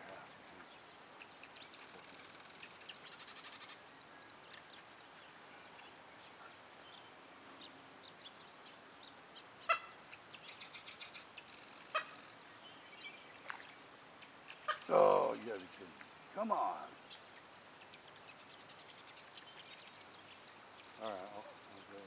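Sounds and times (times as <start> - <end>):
bird chirps: 0.1 - 22.0
high buzzy bird trill: 1.7 - 3.9.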